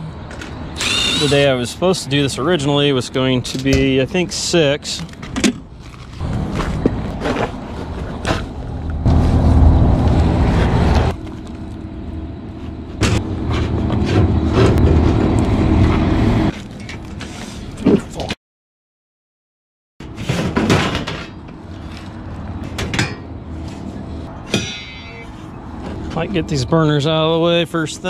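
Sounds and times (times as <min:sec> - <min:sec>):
low rumble with steady hum: 0:00.0 - 0:17.9.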